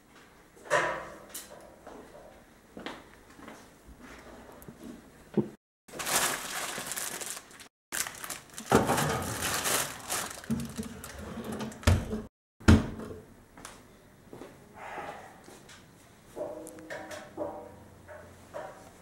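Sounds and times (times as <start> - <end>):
aluminium foil crinkling: 5.9 - 11.2.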